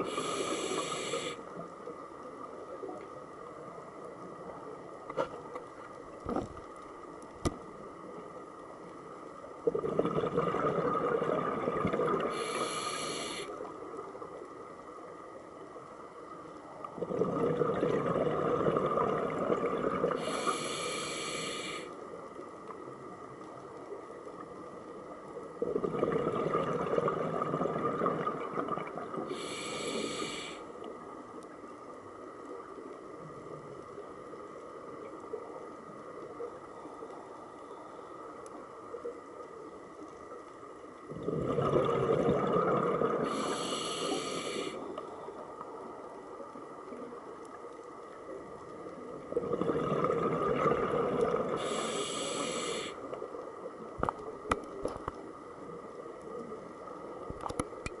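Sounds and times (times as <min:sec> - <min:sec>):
diver breathing through regulator: 0:00.0 - 0:01.5, 0:12.2 - 0:13.6, 0:20.1 - 0:22.0, 0:29.3 - 0:30.7, 0:43.2 - 0:45.0, 0:51.5 - 0:53.0
faint steady tone: 0:00.0 - 0:58.0
small clicks: 0:57.3 - 0:58.0.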